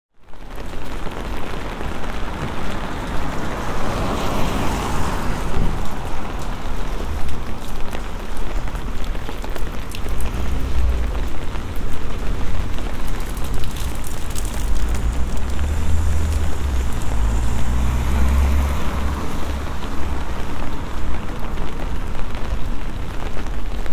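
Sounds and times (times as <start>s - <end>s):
steady rain hiss: 0.2s - 23.9s
vehicle passing on wet road: 0.2s - 23.9s
raindrop ticks: 5.5s - 23.9s
low rumble: 9.8s - 18.0s.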